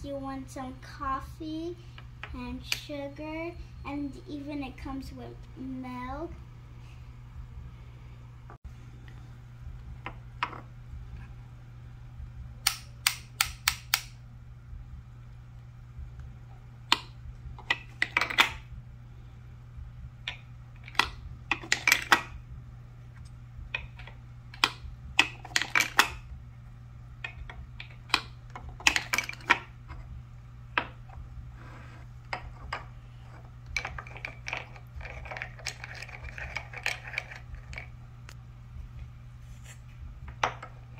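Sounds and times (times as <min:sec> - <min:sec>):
wooden toy pieces clicking: 0:33.8 - 0:37.9.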